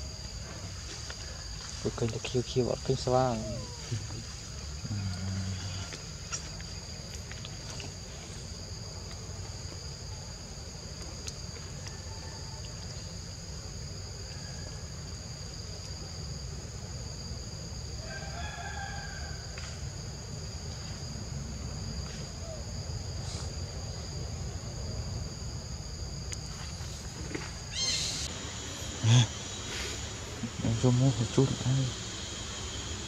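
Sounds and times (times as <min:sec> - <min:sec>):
high-pitched insect drone: 0:00.0 - 0:06.8, 0:17.2 - 0:33.0.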